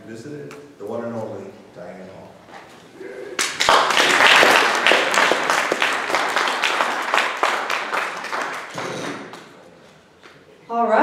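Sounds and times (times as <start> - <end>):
audience applauding: 3.4 - 9.6.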